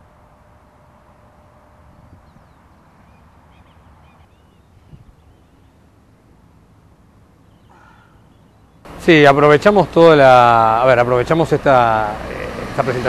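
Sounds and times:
bird chirps: 1.8s - 6.0s, 7.4s - 8.9s.

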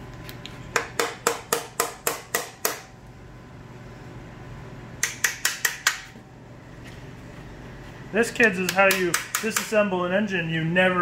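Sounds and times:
hammer striking metal: 8.7s - 9.8s.

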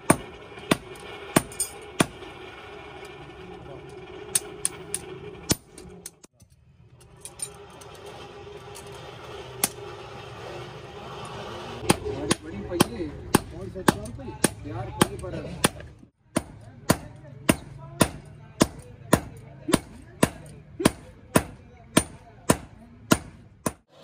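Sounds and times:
hammer striking steel on anvil: 0.0s - 2.3s, 11.8s - 23.9s.

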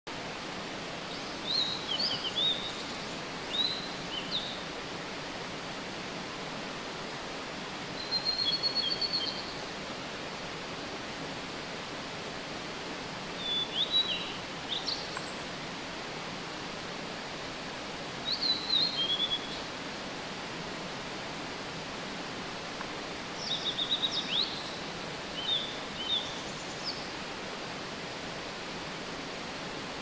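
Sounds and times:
mountain stream rushing: 0.1s - 30.0s
bird singing clear phrases: 1.1s - 4.6s, 8.0s - 9.6s, 13.4s - 15.4s, 18.2s - 19.7s, 23.4s - 24.8s, 25.4s - 27.1s.

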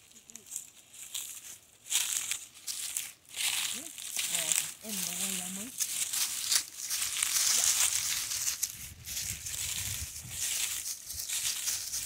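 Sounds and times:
brush rustling: 0.0s - 12.0s
footsteps crunching through dry leaves: 0.0s - 12.0s.

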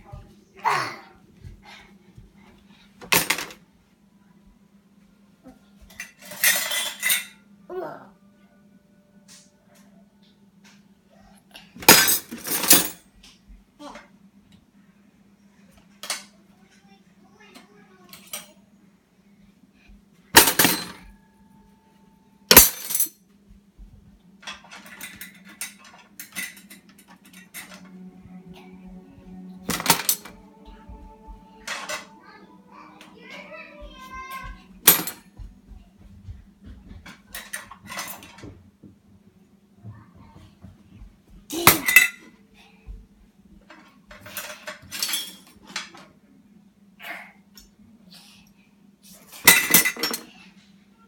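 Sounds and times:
dishes and utensils clattering: 5.9s - 7.4s, 11.8s - 13.0s, 20.4s - 21.1s, 22.5s - 23.1s, 24.4s - 28.1s, 29.6s - 30.4s, 31.6s - 32.4s, 33.1s - 35.5s, 36.9s - 38.6s, 41.6s - 42.3s, 43.7s - 46.1s, 49.3s - 50.4s.

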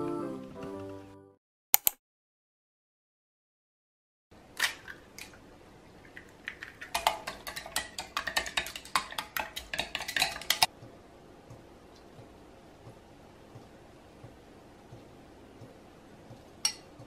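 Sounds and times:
utensil clinking against bowl: 6.5s - 10.7s, 16.6s - 16.9s.

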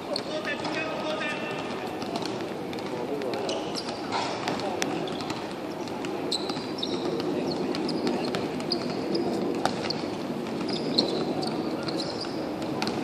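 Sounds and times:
shoe squeaks: 0.1s - 1.3s, 3.4s - 4.4s, 5.0s - 12.4s
ball kick: 0.1s - 11.3s
footfalls on hard court: 0.1s - 11.3s, 12.0s - 13.0s.

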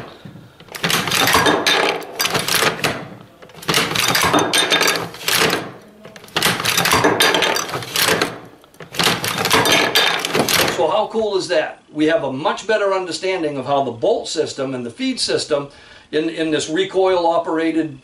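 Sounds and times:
machine gun action clanking: 0.0s - 11.0s.

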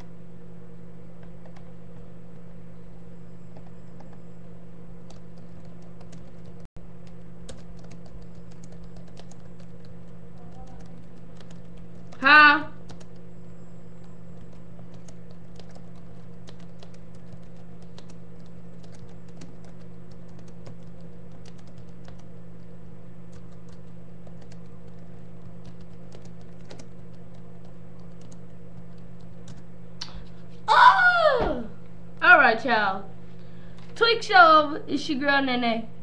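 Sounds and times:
steady low hum: 0.0s - 36.0s
computer keyboard typing: 5.0s - 13.3s, 14.0s - 29.7s
loud yell with falling pitch: 30.7s - 31.8s.

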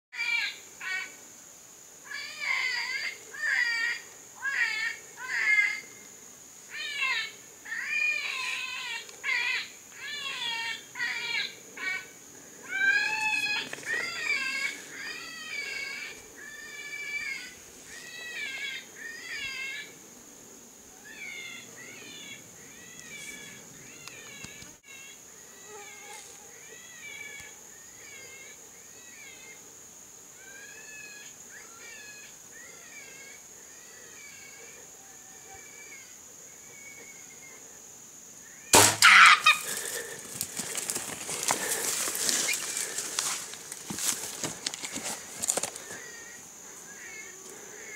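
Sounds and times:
high insect drone: 0.2s - 47.9s
wavering squealing animal cry: 38.8s - 39.9s.

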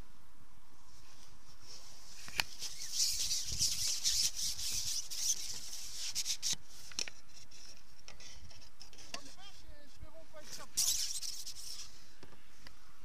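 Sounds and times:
fishing pole scraping on rest: 1.7s - 9.4s, 10.5s - 12.0s.

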